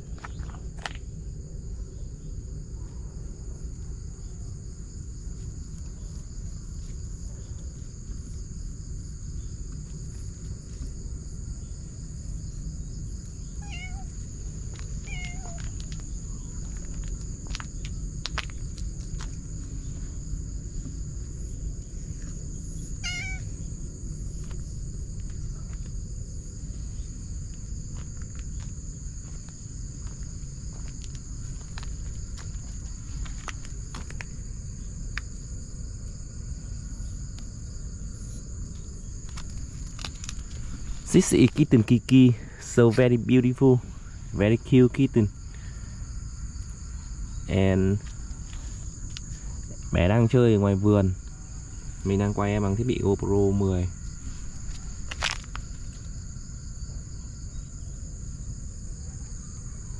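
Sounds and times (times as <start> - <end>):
kitten mewing: 13.6 - 14.2, 15.0 - 15.7, 23.0 - 23.5.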